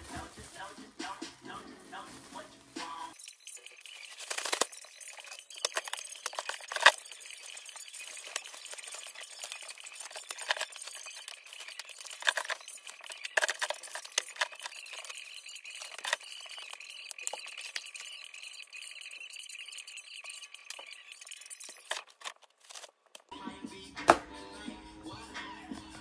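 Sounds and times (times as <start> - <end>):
rustling: 3.1 - 18.7, 20.7 - 23.3
household items clicking and clinking: 3.2 - 23.3.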